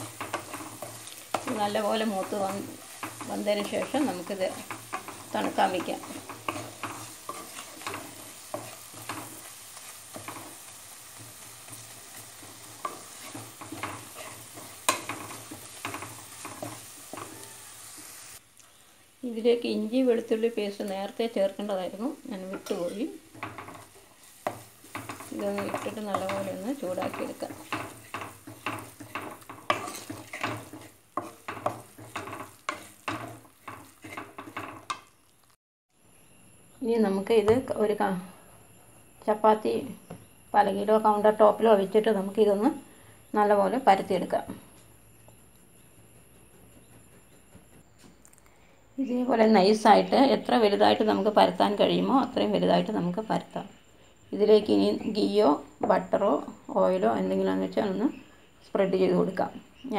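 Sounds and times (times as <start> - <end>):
spatula scraping a pan: 0.0 - 18.4, 22.4 - 35.1
faint sizzle: 0.0 - 46.2, 48.4 - 59.9.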